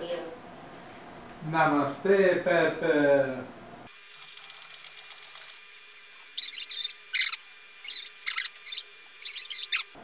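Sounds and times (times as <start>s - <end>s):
robot motors whirring chirps: 4.1s - 10.0s.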